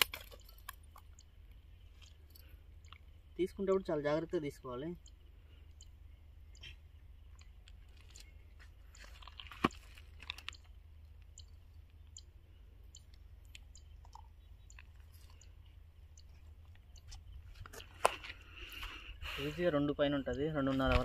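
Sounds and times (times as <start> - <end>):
faint handling crackles and clicks: 0.0 - 3.2, 6.6 - 12.3, 12.9 - 19.0.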